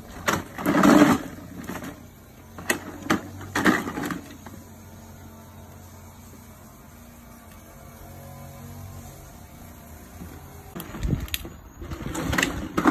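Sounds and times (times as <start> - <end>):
plastic wheels rumbling on concrete: 0.0 - 4.7, 9.6 - 12.9.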